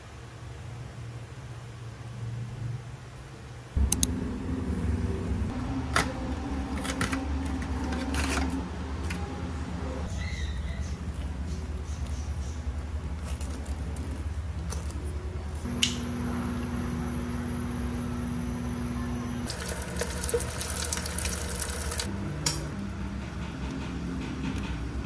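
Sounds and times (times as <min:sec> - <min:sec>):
steady electric hum: 0:00.0 - 0:10.1, 0:11.3 - 0:23.2
appliance switch click: 0:15.7 - 0:16.1.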